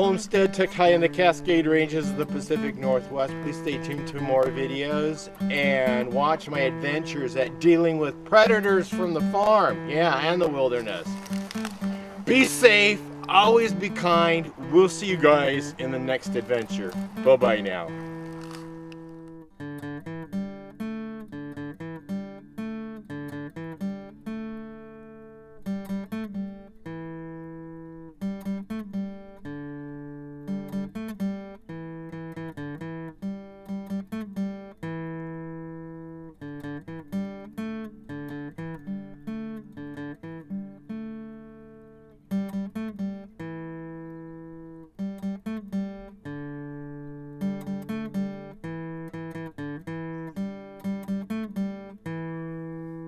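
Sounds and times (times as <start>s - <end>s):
acoustic guitar picking: 0.0s - 53.0s.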